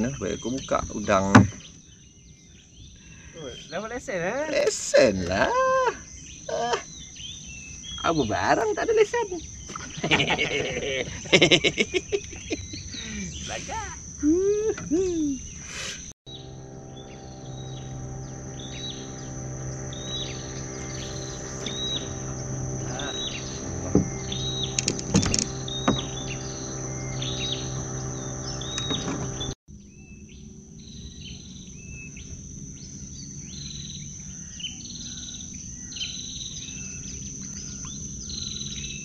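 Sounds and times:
high-pitched insect drone: 7.9s - 29.6s
low steady hum: 16.3s - 29.6s.

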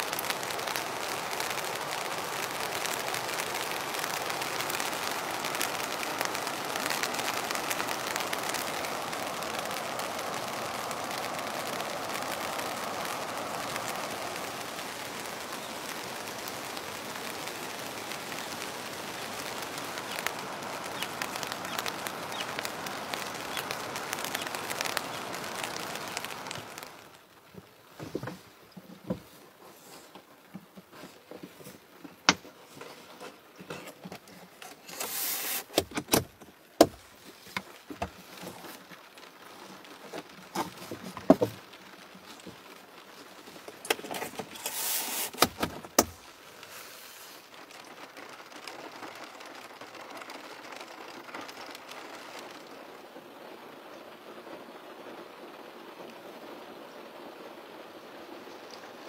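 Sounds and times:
rain hiss: 0.0s - 59.0s
short rustling bursts: 28.0s - 35.9s, 43.3s - 48.4s.

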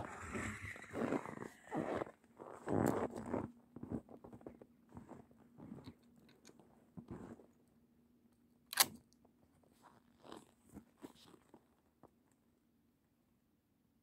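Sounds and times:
rifle clicks: 8.7s - 9.0s.

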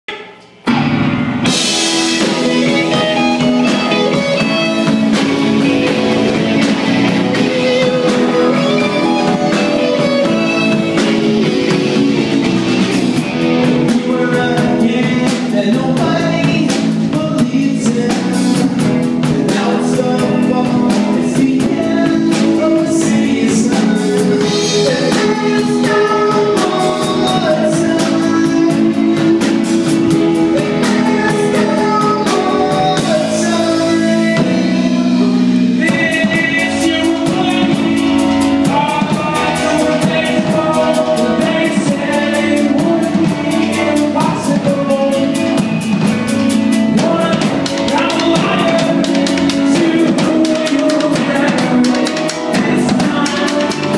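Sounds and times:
live rock band playing: 0.1s - 53.9s
man singing lead vocals: 1.4s - 53.9s.

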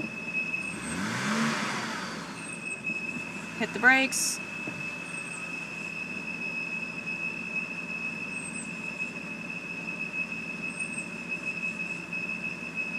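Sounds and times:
car engine idling: 0.0s - 12.9s
faint short squeak: 2.4s - 3.3s, 4.7s - 12.9s
high-pitched whistle: 4.3s - 12.9s.

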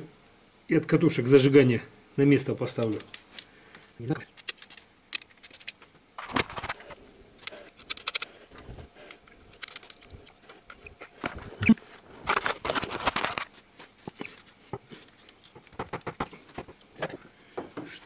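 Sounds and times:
small parts clicking and rattling: 2.7s - 3.5s, 4.2s - 11.4s, 12.3s - 17.2s
scraping and rubbing: 5.4s - 17.2s.

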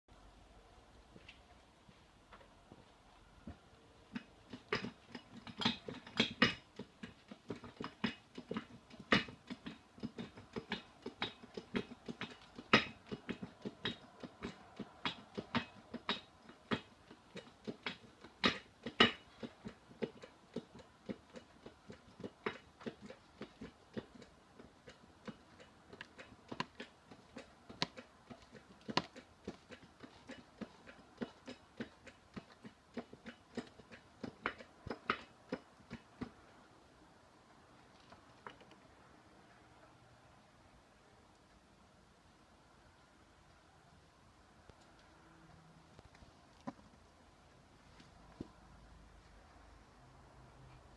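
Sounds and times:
hydraulic press clicks and knocks: 4.1s - 36.3s.

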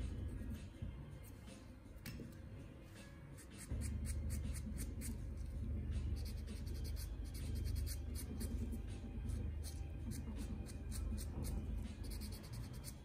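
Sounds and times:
nail buffer scratching toenail: 6.2s - 13.0s.

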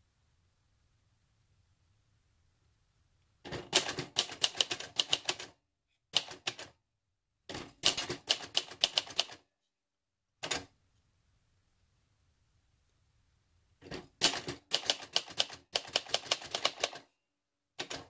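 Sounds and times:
manual typewriter keys clacking: 3.6s - 5.5s, 7.5s - 9.4s, 14.2s - 17.0s.

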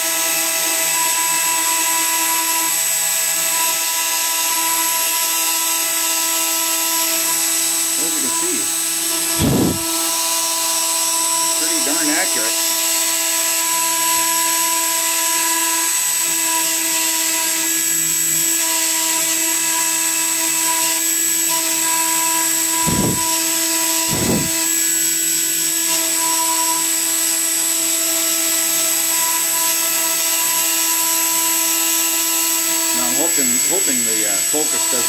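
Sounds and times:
router spindle whining: 0.0s - 35.0s
short low thumps: 9.3s - 9.9s, 22.8s - 23.4s, 24.0s - 24.6s.

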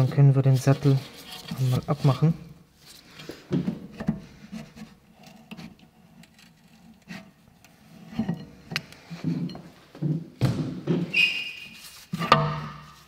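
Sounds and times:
metal scraping on metal: 0.0s - 2.3s, 11.1s - 13.0s.

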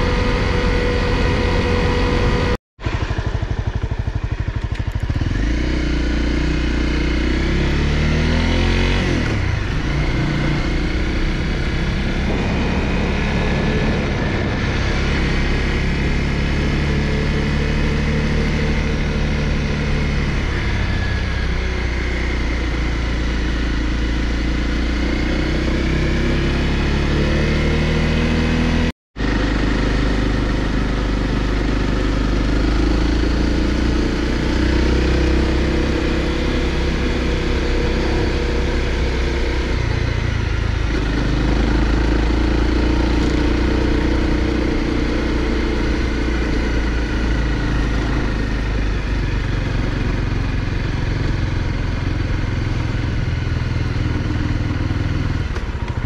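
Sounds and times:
motorcycle engine running: 0.0s - 56.0s
riding wind rushing: 9.4s - 16.6s.

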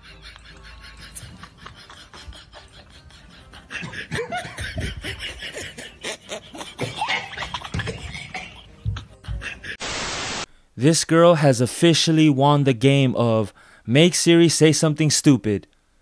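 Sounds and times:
woman giggling: 0.0s - 9.8s.

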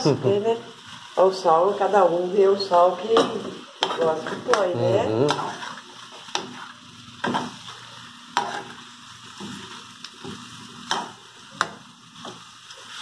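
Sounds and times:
light sizzle: 0.0s - 13.0s
stirring in a metal pan: 3.0s - 13.0s.

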